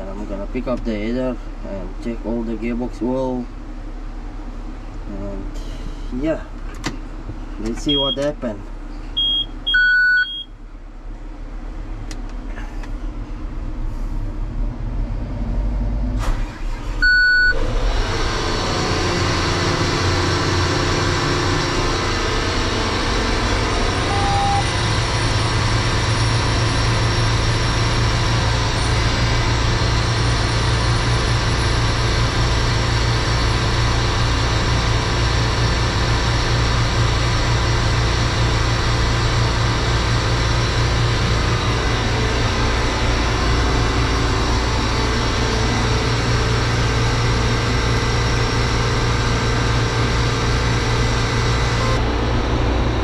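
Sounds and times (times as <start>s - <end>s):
combine harvester running: 3.5s - 53.0s
cab alert beeps: 7.8s - 8.4s, 9.2s - 10.6s, 17.0s - 17.6s, 24.0s - 24.7s.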